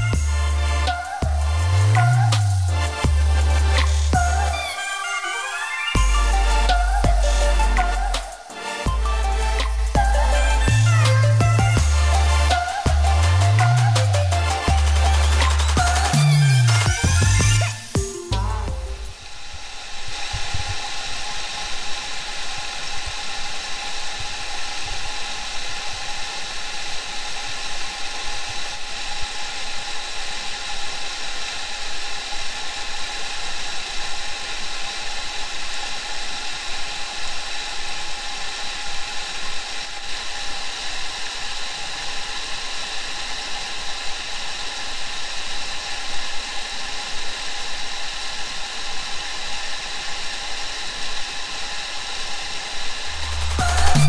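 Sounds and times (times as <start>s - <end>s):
constant high whine: 0.0s - 54.0s.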